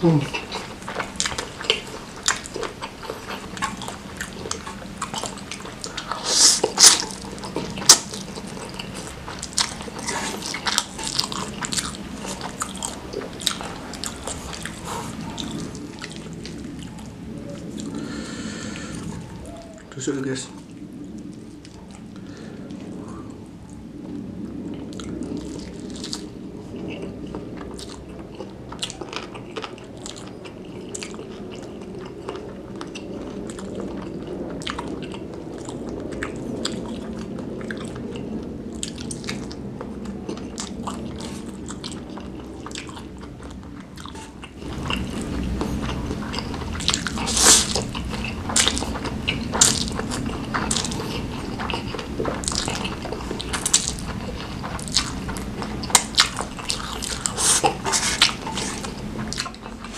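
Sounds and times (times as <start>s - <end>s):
person chewing food: 0.0s - 19.9s, 20.6s - 59.9s
noodles being slurped: 44.1s - 59.9s.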